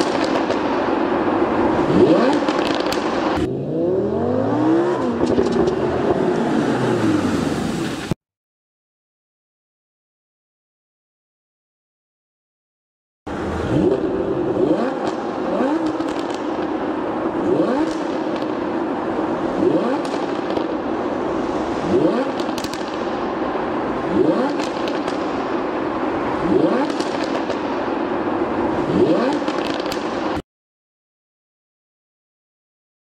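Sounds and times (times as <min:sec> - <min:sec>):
exhaust crackles: 0:00.0 - 0:08.1, 0:13.3 - 0:30.4
sports car engine revving: 0:01.5 - 0:07.8, 0:13.3 - 0:23.2, 0:23.8 - 0:25.4, 0:26.2 - 0:30.4.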